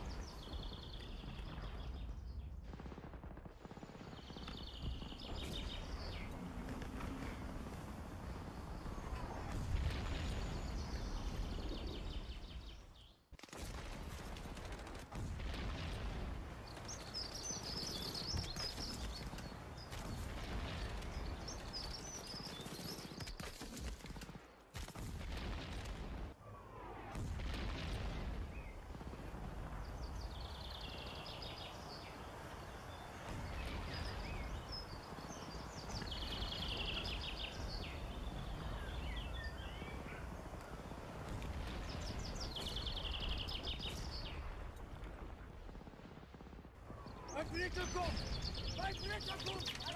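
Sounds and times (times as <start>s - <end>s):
songbirds chirping: 0.0s - 2.6s, 4.0s - 13.3s, 15.8s - 23.4s, 28.0s - 45.0s, 46.8s - 49.9s.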